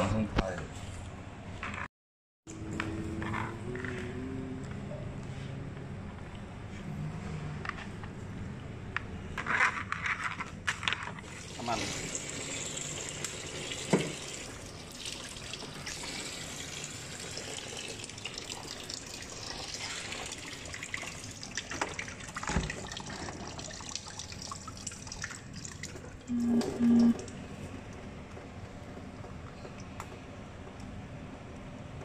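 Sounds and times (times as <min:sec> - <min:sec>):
tap water splashing into basin: 0:13.2 - 0:16.1
short low beeps: 0:26.3 - 0:27.3.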